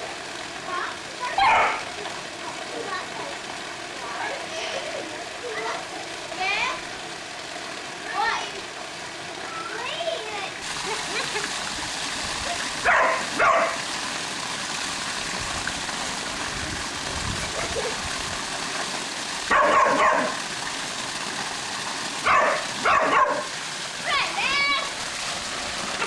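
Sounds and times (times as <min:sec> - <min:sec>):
waterfall rushing into pool: 0:00.0 - 0:26.0
dog barking: 0:01.4 - 0:01.8, 0:12.8 - 0:13.8, 0:19.5 - 0:20.4, 0:22.2 - 0:23.5.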